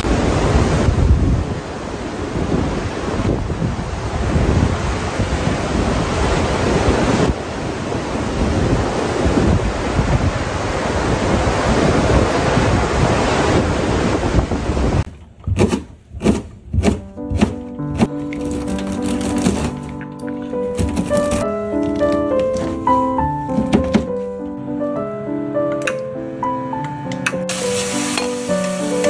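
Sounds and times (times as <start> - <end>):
surf breaking on rocky shore: 0.0 - 15.1, 27.5 - 29.0
wind buffeting microphone: 0.0 - 18.1
knife chopping on cutting board: 15.5 - 18.1.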